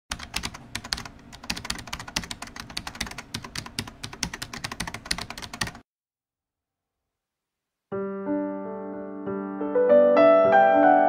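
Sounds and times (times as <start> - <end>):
keyboard typing clicks: 0.1 - 5.8.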